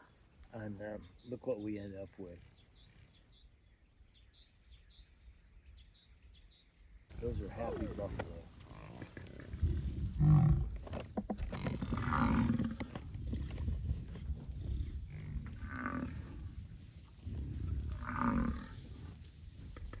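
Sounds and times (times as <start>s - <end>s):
bison bellowing: 7.2s - 19.2s
bison grunting: 7.2s - 20.0s.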